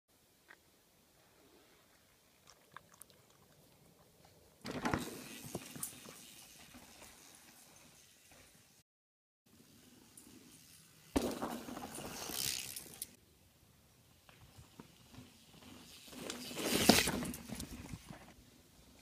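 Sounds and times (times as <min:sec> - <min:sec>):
mountain bikes passing: 0:04.6 - 0:08.8, 0:09.5 - 0:19.0.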